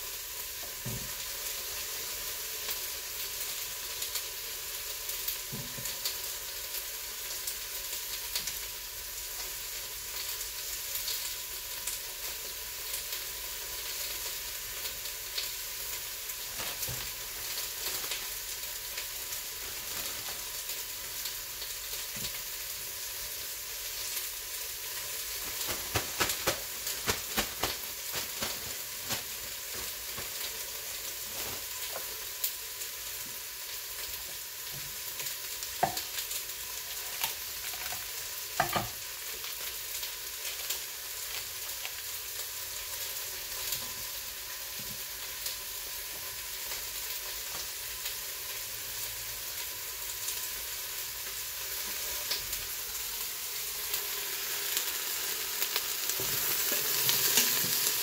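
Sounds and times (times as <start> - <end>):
steam hissing from pressure cooker: 0.0 - 58.0
plastic bag crinkling: 16.4 - 20.9, 24.9 - 32.4.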